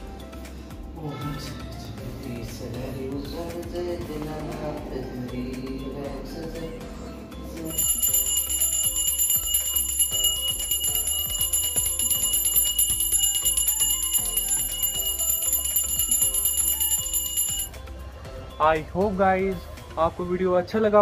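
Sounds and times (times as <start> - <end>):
faint devotional music: 0.0 - 21.0
hand bell ringing rapidly: 7.7 - 17.8.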